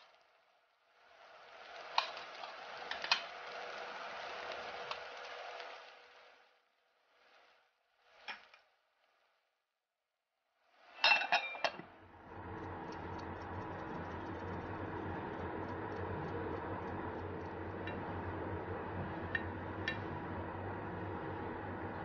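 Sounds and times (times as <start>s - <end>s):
kitchenware clinking: 11.0s - 11.8s
steady hum: 11.9s - 22.0s
faint ticks: 12.3s - 18.0s.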